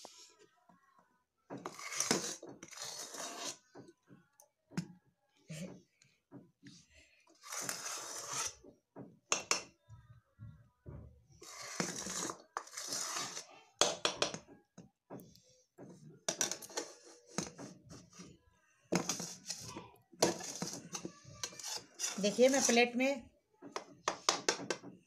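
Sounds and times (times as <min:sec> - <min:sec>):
metal spatula scraping a pan: 0:01.6 - 0:03.7, 0:07.3 - 0:08.6, 0:11.4 - 0:14.4, 0:16.3 - 0:18.3, 0:18.9 - 0:23.2.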